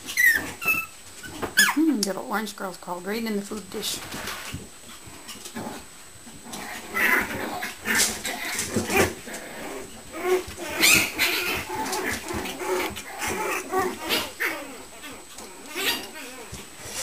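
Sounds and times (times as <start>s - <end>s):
puppies yapping and whining: 0.0s - 1.8s, 6.5s - 17.0s.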